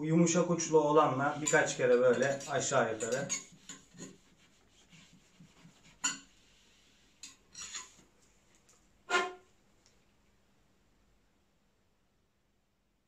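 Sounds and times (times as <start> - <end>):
cleaning rod scraping in barrel: 1.1 - 4.3, 7.2 - 8.0, 9.1 - 9.4.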